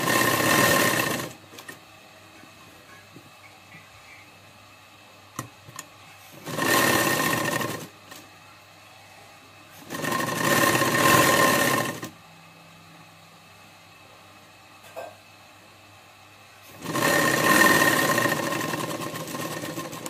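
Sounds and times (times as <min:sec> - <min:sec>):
sewing machine stitching: 0:00.0 - 0:01.8, 0:05.7 - 0:08.2, 0:09.8 - 0:12.1, 0:16.7 - 0:20.0.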